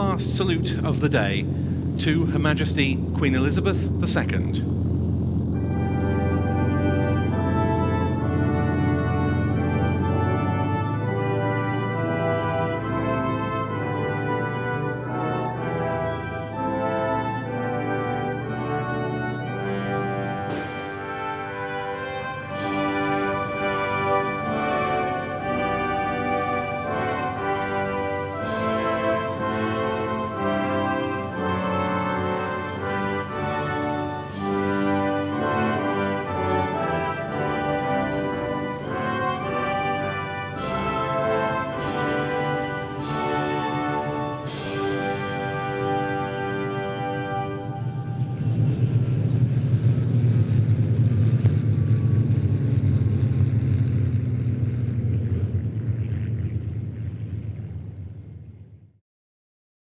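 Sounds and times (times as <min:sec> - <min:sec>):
brass playing held chords: 0:00.0 - 0:49.4
propeller planes droning overhead: 0:00.0 - 0:59.0
cymbal crash: 0:20.4 - 0:21.4, 0:39.4 - 0:46.0.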